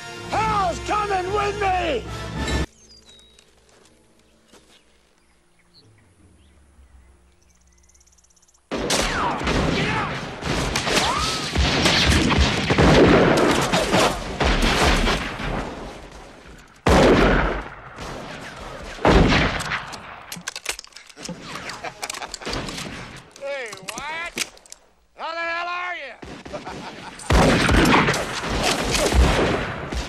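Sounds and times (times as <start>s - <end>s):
volley of gunfire: 8.7s - 16.2s, 16.8s - 20.3s, 26.2s - 30.0s.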